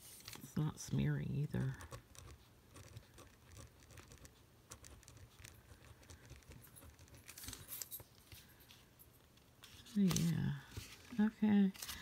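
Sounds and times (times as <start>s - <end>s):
hand rustling on paper: 0.0s - 12.0s
pen scratching on paper: 1.6s - 7.3s.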